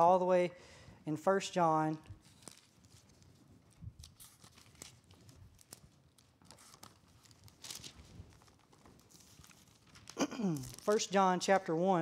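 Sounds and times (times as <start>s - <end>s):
book pages being turned: 2.2s - 11.2s.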